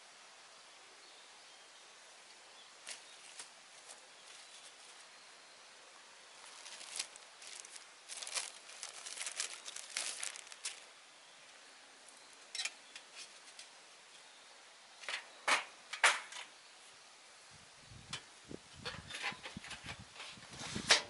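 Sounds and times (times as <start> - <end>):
plastic bag crinkling: 6.4 - 10.9.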